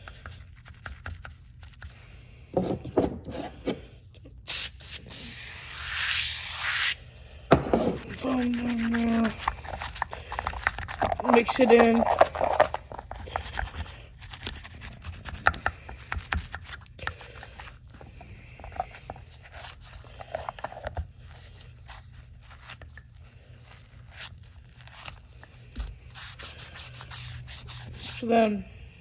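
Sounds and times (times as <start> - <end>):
toothbrush scrubbing: 8.0 - 28.5.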